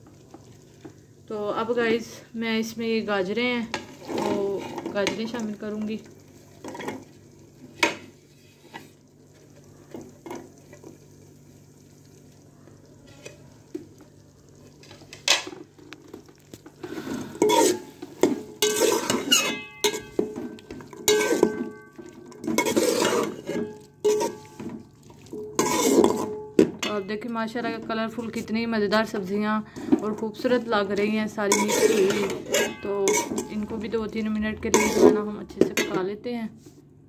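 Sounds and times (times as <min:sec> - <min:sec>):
steel spoon stirring in a metal pot: 0:07.7 - 0:09.0, 0:16.8 - 0:33.9, 0:34.6 - 0:36.0.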